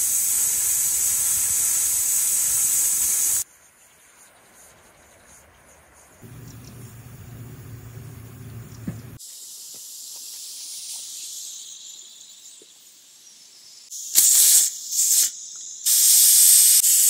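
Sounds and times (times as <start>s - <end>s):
steam hissing from pot valve: 0.0s - 3.5s, 6.2s - 17.0s
low rumbling: 6.2s - 9.2s.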